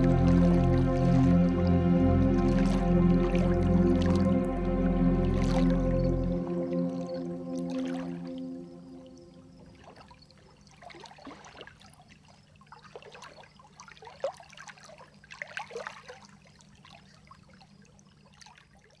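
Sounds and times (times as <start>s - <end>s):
water splash: 0.0s - 12.1s
water lapping gently: 0.0s - 19.0s.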